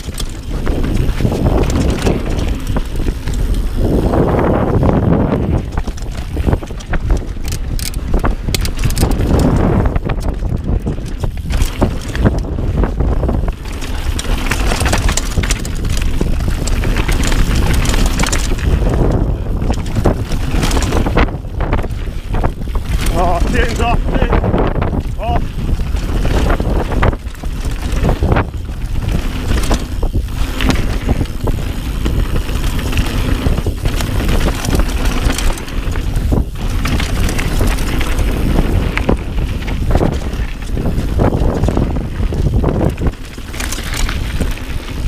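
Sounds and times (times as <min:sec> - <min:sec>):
bike rattling over bumps: 0:00.0 - 0:45.0
bike tyres rumbling on dirt: 0:00.0 - 0:45.0
wind on microphone: 0:00.0 - 0:45.0.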